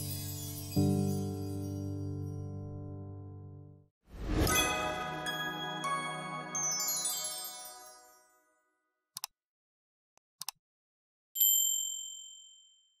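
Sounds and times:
sparkly chime jingle: 0:00.0 - 0:02.6, 0:04.2 - 0:08.8
mouse clicks: 0:09.2 - 0:09.4, 0:10.4 - 0:10.6.

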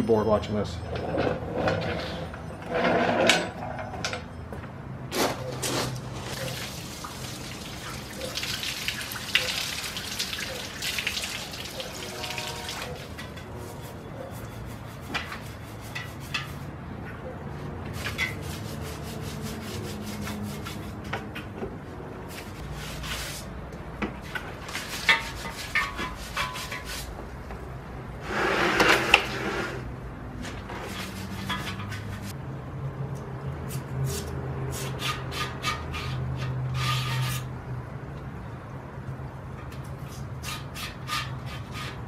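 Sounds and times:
brushes scrubbing wet metal: 0:06.3 - 0:16.8, 0:17.9 - 0:21.1, 0:22.3 - 0:23.5, 0:24.3 - 0:27.2, 0:30.7 - 0:32.3, 0:33.7 - 0:37.5, 0:40.0 - 0:42.0
bore brush scrubbing back and forth: 0:18.0 - 0:21.1.

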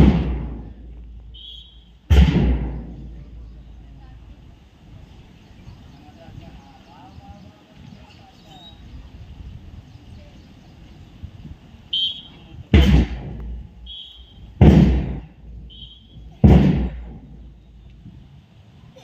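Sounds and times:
whistle blasts: 0:01.3 - 0:02.1, 0:11.9 - 0:12.6, 0:13.8 - 0:14.6, 0:15.6 - 0:16.4.

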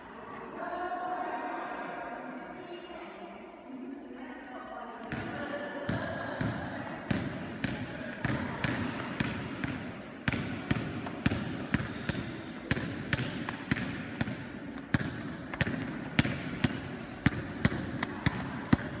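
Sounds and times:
basketball bouncing on wooden floor: 0:05.9 - 0:19.0.

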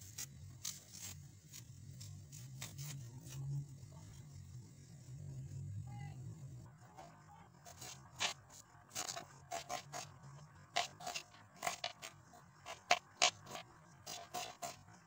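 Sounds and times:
knife crunching through onion: 0:07.7 - 0:15.0.

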